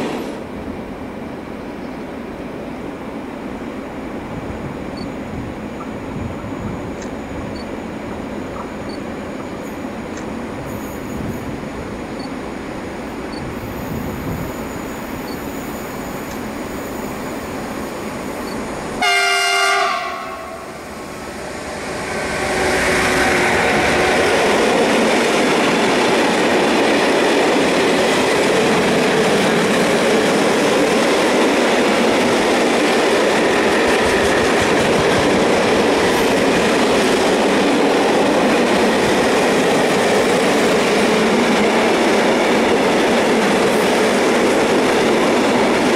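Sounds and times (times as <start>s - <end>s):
locomotive horn blast: 19.0s - 20.8s.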